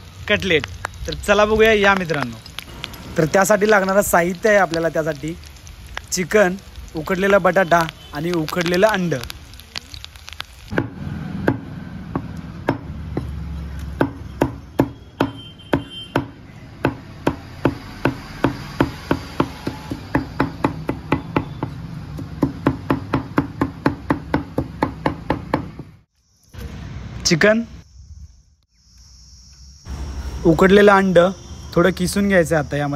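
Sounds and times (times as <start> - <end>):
knife chopping chicken on wood: 22.2 - 25.8.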